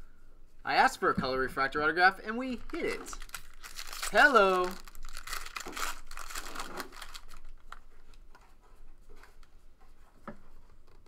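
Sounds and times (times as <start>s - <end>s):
cards clicking and rustling: 2.5s - 7.8s
foil pack crinkling: 2.5s - 8.3s.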